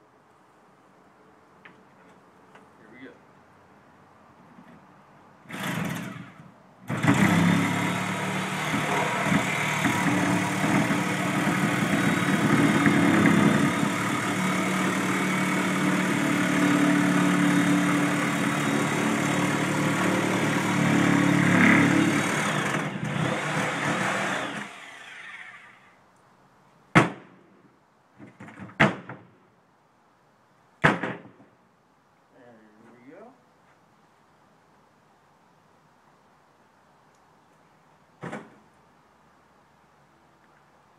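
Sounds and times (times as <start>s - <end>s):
reciprocating saw cutting: 5.5s - 25.9s.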